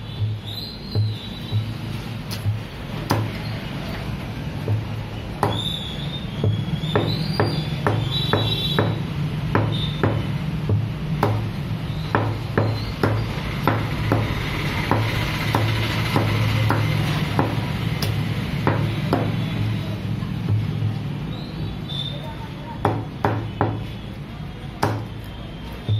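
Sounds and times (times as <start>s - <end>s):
cleaver chopping on wooden block: 0.9s - 3.5s, 4.6s - 19.5s, 22.8s - 23.9s, 24.8s - 25.2s.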